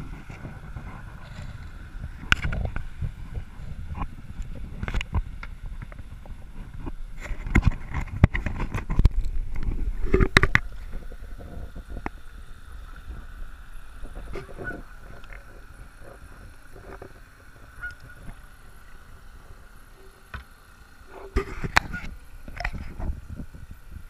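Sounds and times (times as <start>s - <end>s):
water lapping: 0.0s - 24.0s
geese honking: 14.3s - 15.6s, 17.6s - 18.6s.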